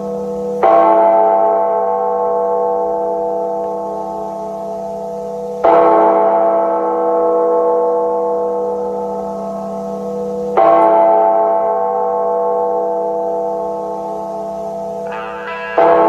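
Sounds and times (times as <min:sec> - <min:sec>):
gong ringing: 0:15.0 - 0:16.0.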